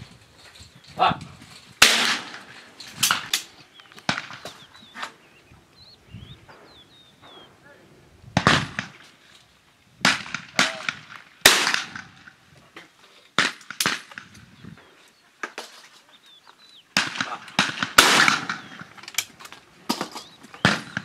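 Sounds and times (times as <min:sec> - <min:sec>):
shotgun shots with echo: 0:01.8 - 0:04.6, 0:08.4 - 0:09.0, 0:10.0 - 0:12.3, 0:17.0 - 0:19.0, 0:19.9 - 0:21.0.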